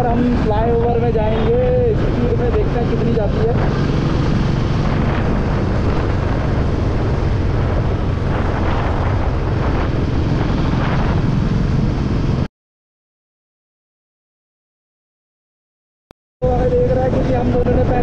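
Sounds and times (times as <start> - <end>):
motorcycle engine running: 0.0 - 12.4
wind rushing over microphone: 0.0 - 12.5, 16.4 - 18.0.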